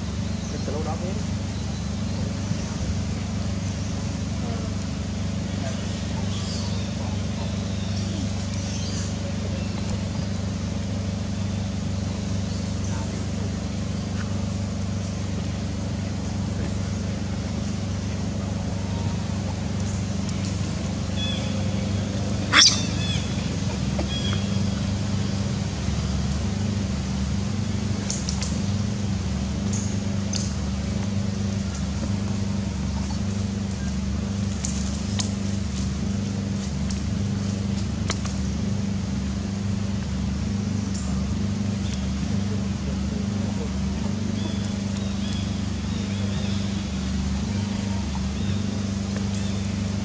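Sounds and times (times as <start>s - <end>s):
low engine-like hum: 0.0s - 50.0s.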